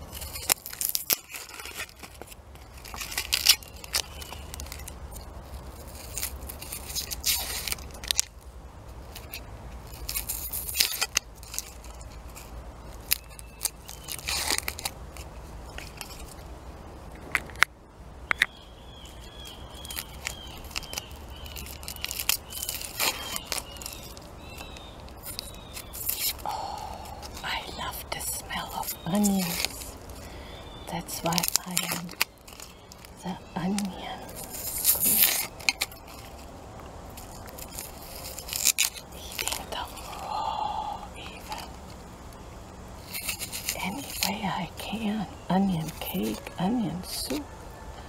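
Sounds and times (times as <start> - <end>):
thin squeaks: 0.0 - 8.2, 9.1 - 16.4, 19.1 - 26.5, 28.2 - 36.5, 37.2 - 40.1, 43.0 - 44.3
onion skin crackling and tearing: 0.0 - 16.6, 17.2 - 47.5.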